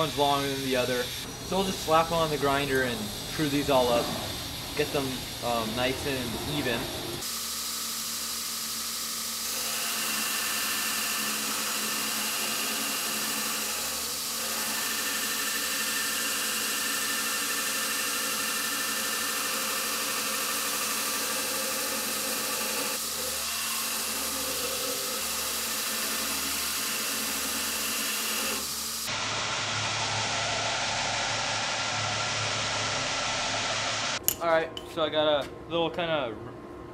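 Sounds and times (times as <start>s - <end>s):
motor hum: 0.0s - 7.3s
belt grinder grinding steel: 9.2s - 29.1s.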